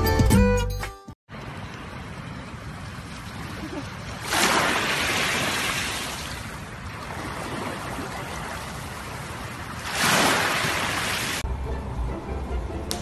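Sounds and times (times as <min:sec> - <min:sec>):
waves washing onto pebbles: 0:01.4 - 0:11.4
low hum: 0:11.5 - 0:13.0.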